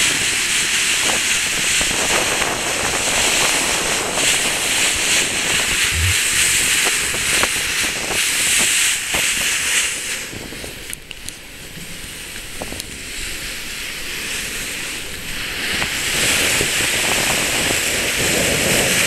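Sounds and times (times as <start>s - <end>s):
sea water rushing along ship's bow: 0.0s - 19.0s
wind: 0.0s - 19.0s
low thud: 5.9s - 6.7s.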